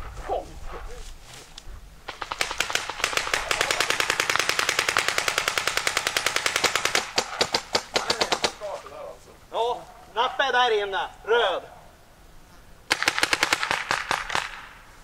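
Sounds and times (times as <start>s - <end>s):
paintball marker rapid firing: 2.1s - 8.7s, 12.9s - 14.8s.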